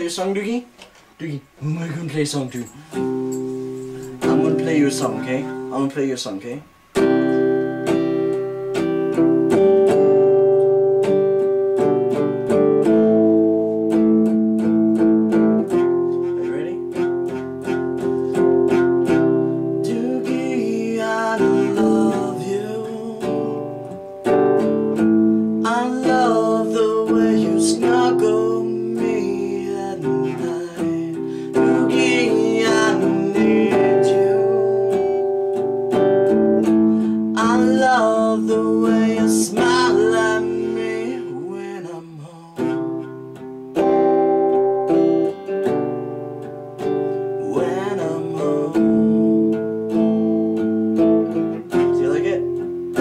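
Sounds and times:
acoustic guitar strummed: 1.4s - 53.0s
man singing: 4.2s - 5.6s, 19.1s - 24.0s, 25.6s - 35.6s, 37.0s - 43.2s, 47.4s - 50.3s.

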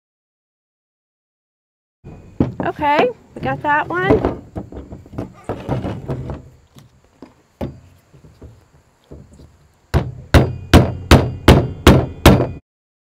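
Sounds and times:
rubber mallet hammering metal: 9.9s - 12.6s.

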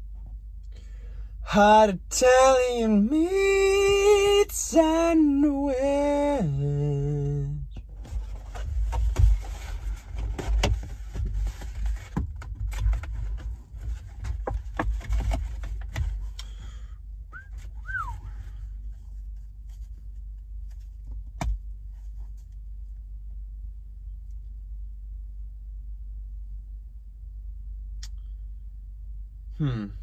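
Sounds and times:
cardboard box rustling and crinkling: 8.0s - 16.4s.

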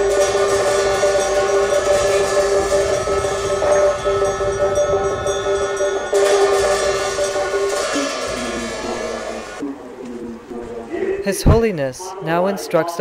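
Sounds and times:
hand bell ringing: 0.0s - 9.6s
hand drum: 0.0s - 9.6s
long horn tones: 0.0s - 10.9s.

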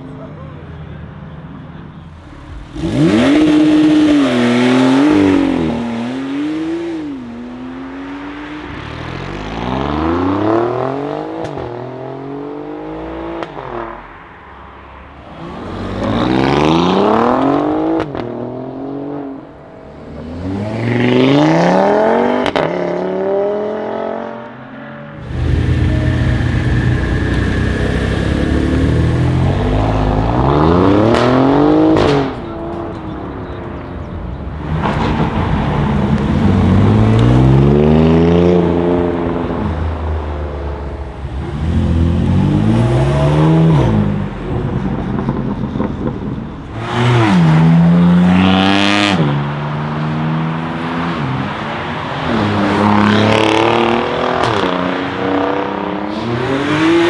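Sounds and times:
car engine accelerating hard: 2.2s - 7.0s.

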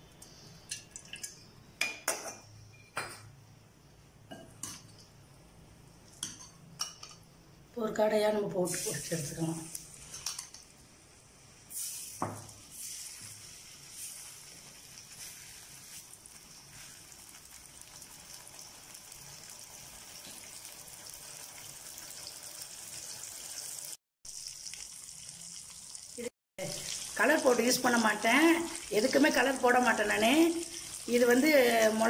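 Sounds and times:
meat sizzling in hot oil: 8.7s - 32.0s.

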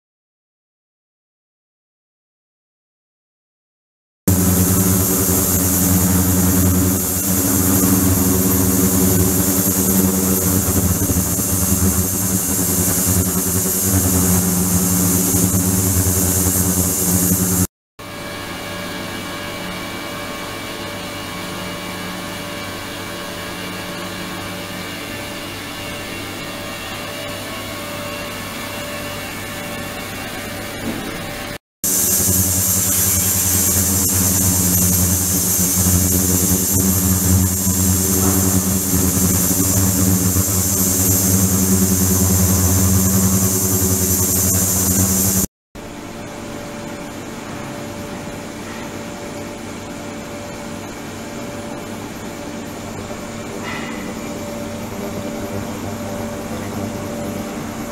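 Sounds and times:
steady tones: 4.3s - 17.7s, 31.8s - 45.5s
ultrasonic tank humming: 4.3s - 17.7s, 31.8s - 45.5s.

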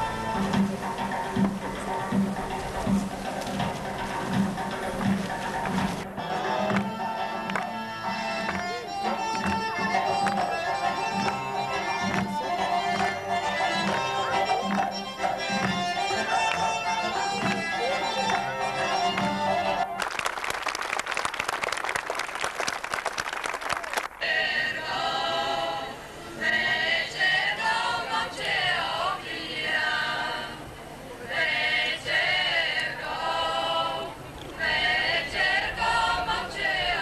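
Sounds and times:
audience clapping: 4.6s - 6.0s, 6.6s - 7.8s, 8.4s - 8.7s, 9.4s - 13.2s, 13.8s - 15.0s, 15.6s - 24.3s
women's choir singing: 10.2s - 19.7s, 24.2s - 37.0s.

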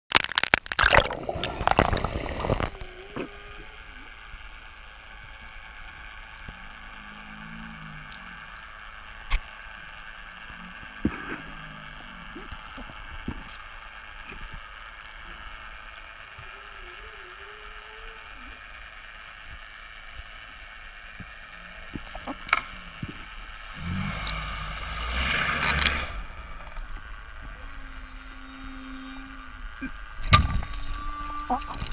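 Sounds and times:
sharp underwater clicks: 0.1s - 3.4s, 5.4s - 11.6s, 21.1s - 27.6s
loud water splashing: 0.1s - 3.8s, 21.7s - 27.2s
underwater water hiss: 1.1s - 31.9s
faint low wavering tones: 20.4s - 31.9s
low rumble: 21.2s - 31.9s.

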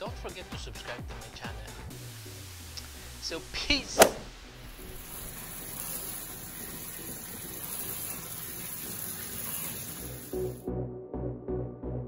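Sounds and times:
water running from a tap: 4.6s - 10.7s.

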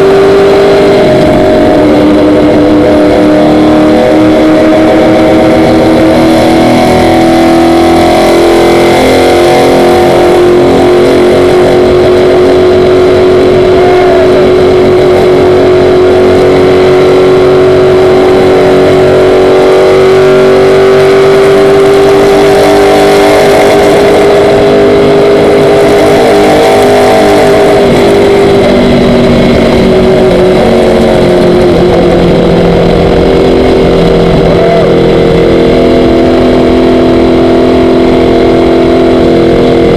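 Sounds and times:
race car engine at high revs: 0.0s - 39.9s.

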